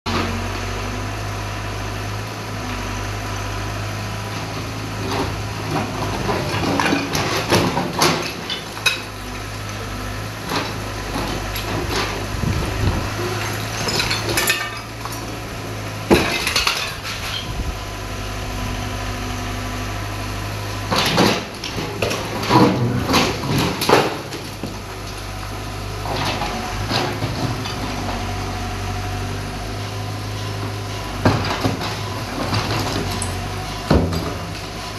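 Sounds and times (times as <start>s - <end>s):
excavator engine running: 0.1s - 34.9s
concrete cracking and rubble falling: 5.0s - 17.9s, 20.8s - 25.3s, 31.3s - 34.7s.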